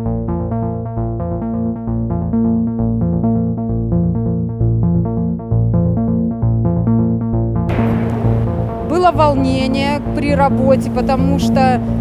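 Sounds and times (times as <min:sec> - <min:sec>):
bass line: 0:00.0 - 0:12.0
keyboard notes: 0:07.7 - 0:12.0.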